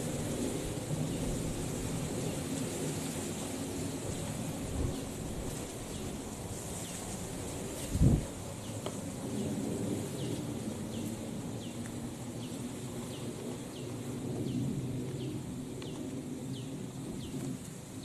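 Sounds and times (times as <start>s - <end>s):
wind rumbling: 0.0s - 18.0s.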